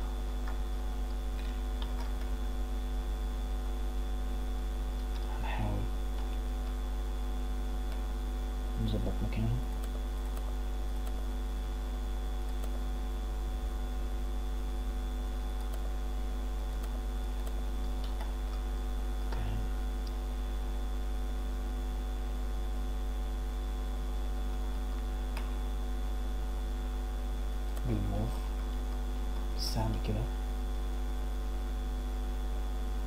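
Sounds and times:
electrical mains hum: 0.0 - 33.0
faint scattered clicks: 6.1 - 6.8, 9.7 - 11.2, 12.4 - 12.8, 15.6 - 15.9, 16.6 - 18.6.

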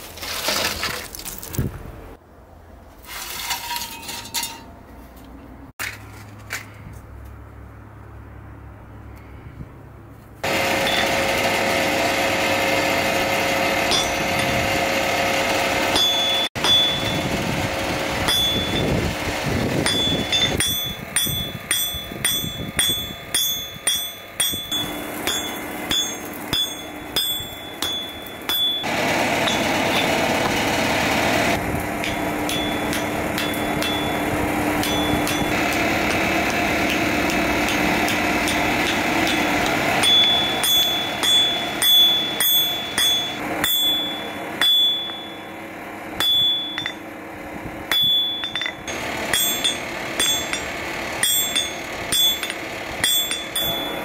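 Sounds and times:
hammer striking steel on anvil: 10.4 - 11.6, 12.2 - 17.4, 18.2 - 19.0, 19.8 - 45.6, 46.2 - 47.1, 47.9 - 54.0.

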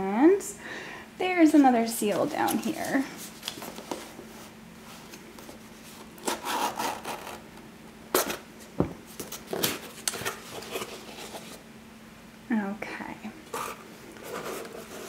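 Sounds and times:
cardboard rustling and rubbing: 1.5 - 7.5, 9.1 - 11.6, 13.5 - 15.0.

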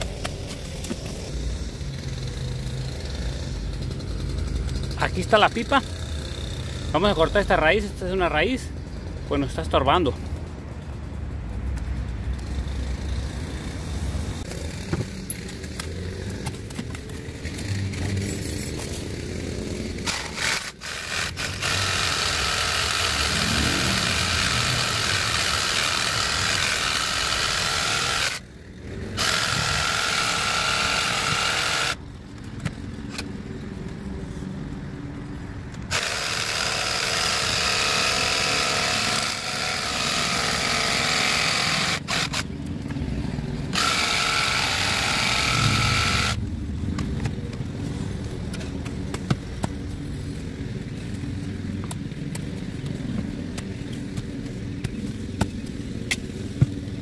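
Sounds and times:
reciprocating saw cutting root: 20.0 - 28.4, 29.1 - 32.0, 35.9 - 42.5, 43.7 - 46.4.

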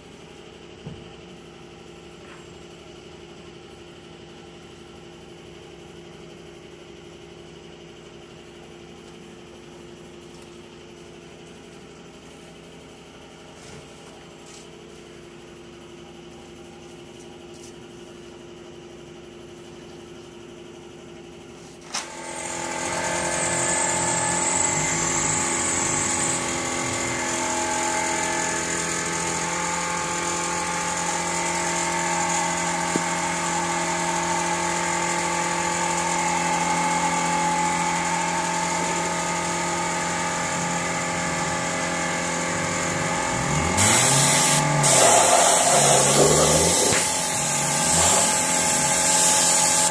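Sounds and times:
motor humming and hissing: 21.4 - 49.9.

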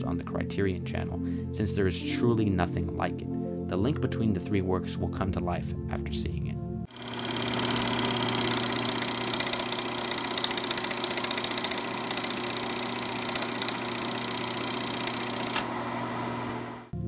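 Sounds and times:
film projector running: 6.9 - 17.0.

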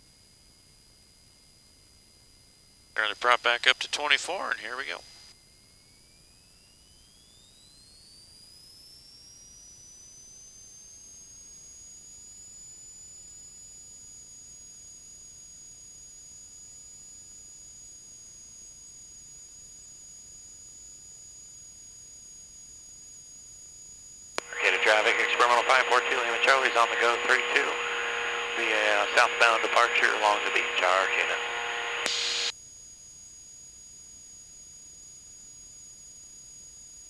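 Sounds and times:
faint high-pitched engine whine: 24.4 - 32.5.

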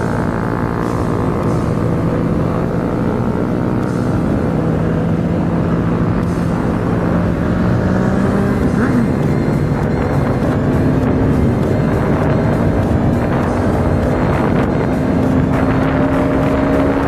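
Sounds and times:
motorcycle engine running: 0.0 - 17.0
wind noise on microphone: 4.2 - 17.0.

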